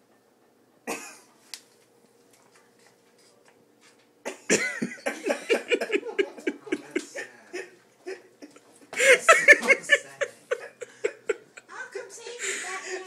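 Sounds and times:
person laughing: 4.3s - 11.7s.

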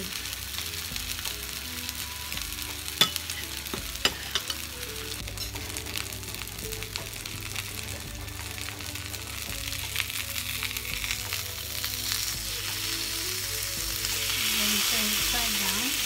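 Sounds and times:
fish sizzling in grill pan: 0.0s - 16.0s.

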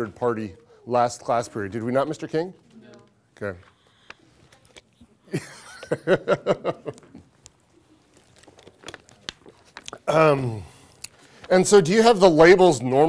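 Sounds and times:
man laughing: 5.3s - 7.2s.

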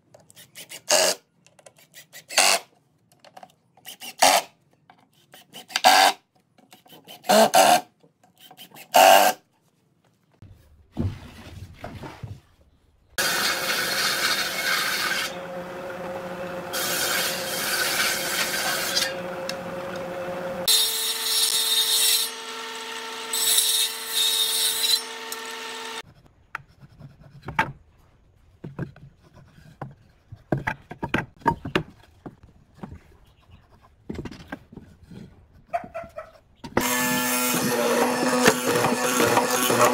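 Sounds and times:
table saw cutting boards: 13.2s - 26.0s, 36.8s - 39.9s
power tool driving into wood: 36.8s - 39.9s.

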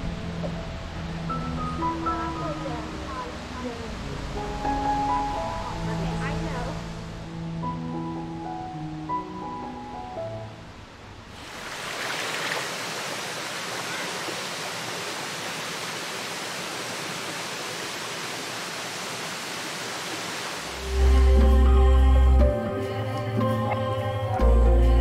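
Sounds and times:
stream and waterfall rushing: 11.3s - 21.8s
loud deep drone: 20.8s - 22.6s.

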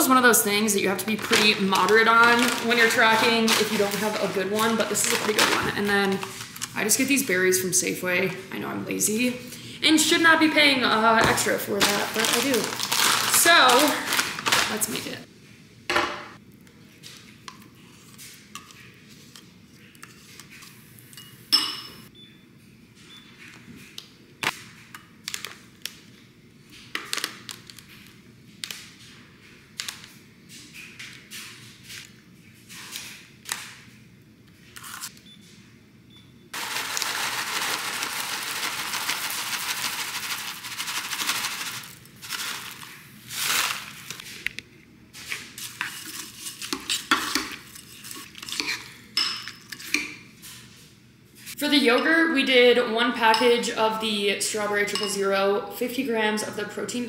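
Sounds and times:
granola pouring into bowl: 36.6s - 44.1s
spoon scraping bowl: 45.6s - 48.9s.

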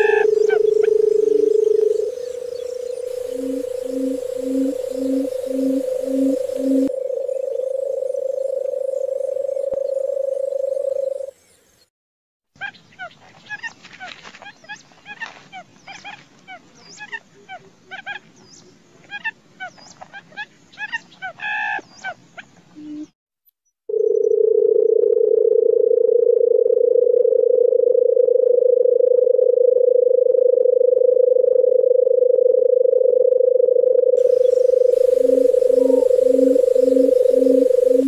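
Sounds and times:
bird purring drone call: 0.0s - 11.5s, 23.9s - 38.0s.

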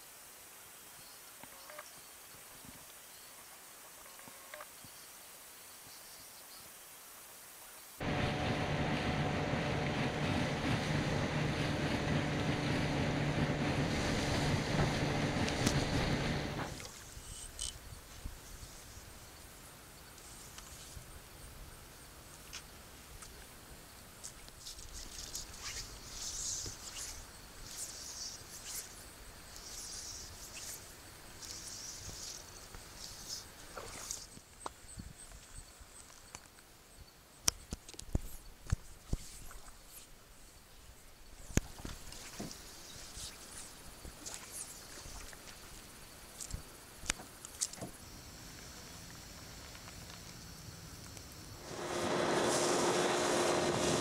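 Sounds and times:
outboard motor running: 8.0s - 16.8s, 51.6s - 54.0s
water rushing past hull: 8.0s - 17.0s, 51.6s - 54.0s
fly line swishing: 24.6s - 34.4s, 42.1s - 45.7s.

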